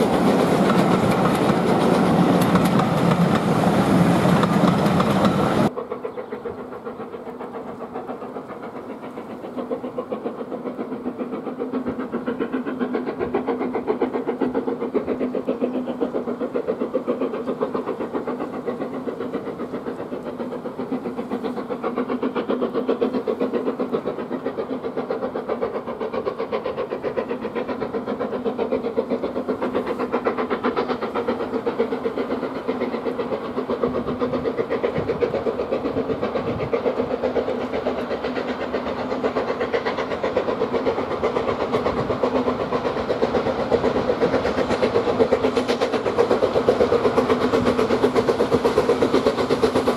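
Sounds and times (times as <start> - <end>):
passing train: 0.0 - 49.9
steam locomotive chuffing: 0.0 - 49.9.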